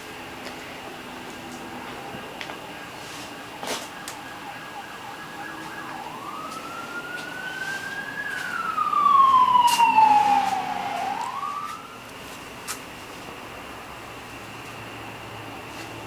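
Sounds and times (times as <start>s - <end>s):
emergency siren wailing: 0.9s - 12.2s.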